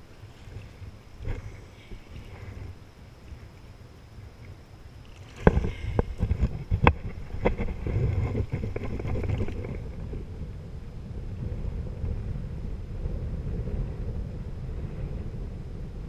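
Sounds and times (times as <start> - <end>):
water lapping at a kayak: 0.0 - 16.0
knocks against a kayak: 5.4 - 9.7.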